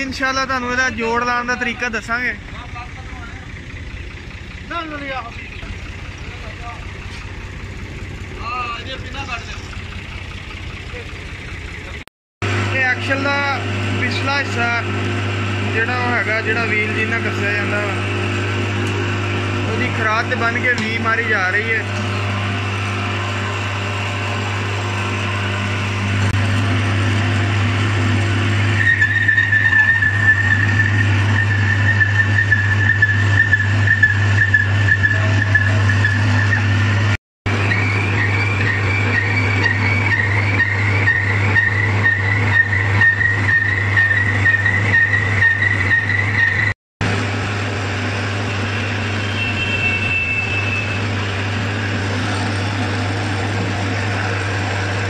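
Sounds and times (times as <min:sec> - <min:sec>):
lathe humming: 0:00.0 - 0:55.0
cutting tool whining: 0:12.4 - 0:55.0
drill boring metal: 0:12.4 - 0:55.0.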